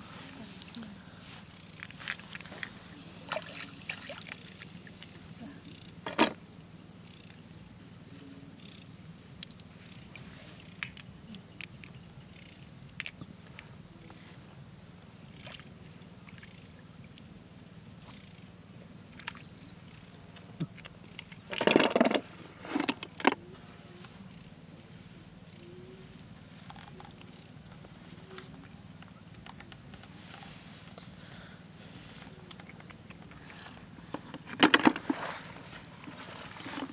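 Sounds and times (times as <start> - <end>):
steady low hum: 0.0 - 36.9
hands rustling through grass: 29.9 - 32.7.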